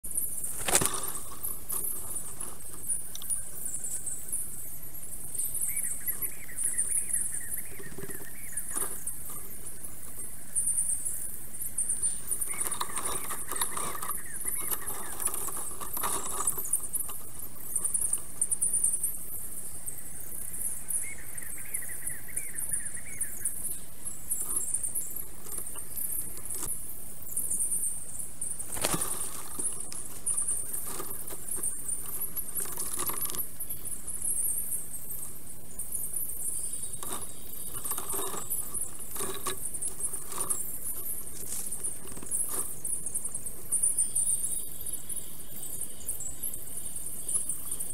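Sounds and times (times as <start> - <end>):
high-pitched chatter and crackle: 12.0 - 18.8.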